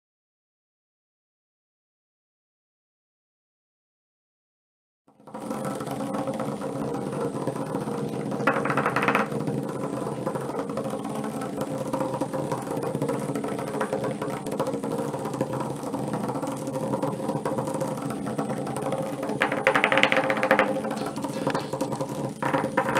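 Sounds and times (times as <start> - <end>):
rattle on plastic track: 5.3 - 22.9
toy bugs buzzing: 7.7 - 12.2, 18.9 - 22.9.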